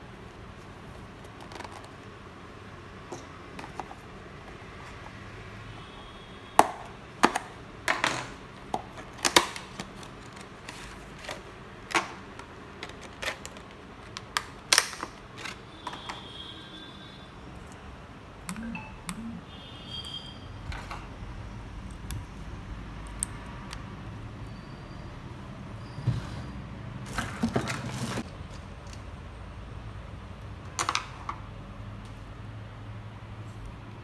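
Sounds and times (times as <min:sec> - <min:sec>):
cardboard and plastic clicks and snaps: 0:08.8 - 0:15.6.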